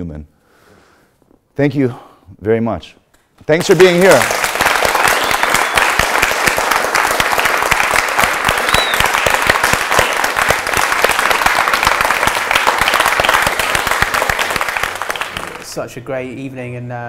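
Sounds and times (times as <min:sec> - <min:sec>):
audience applauding: 0:03.5 - 0:15.9.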